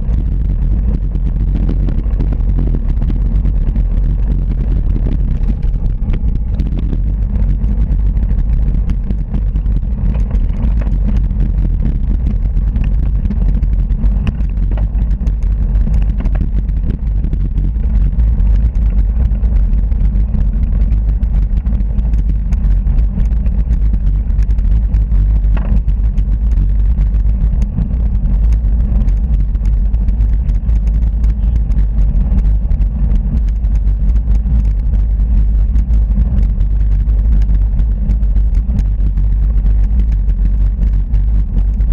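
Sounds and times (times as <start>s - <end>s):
road and tyre vibration: 0.0s - 41.9s
wind buffeting microphone: 0.0s - 41.9s
faint clicks: 12.8s - 41.9s.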